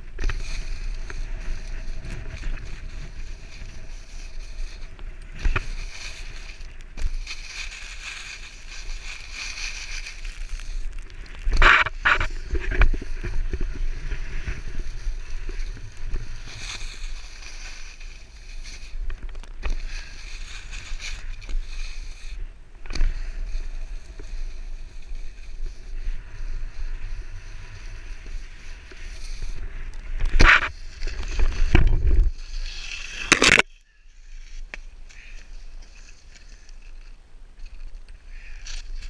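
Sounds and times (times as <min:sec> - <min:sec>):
skis scraping over snow: 0:00.0 - 0:22.4, 0:23.0 - 0:33.6
wind rumbling on microphone: 0:00.0 - 0:39.0
skier falling in snow: 0:00.1 - 0:22.4.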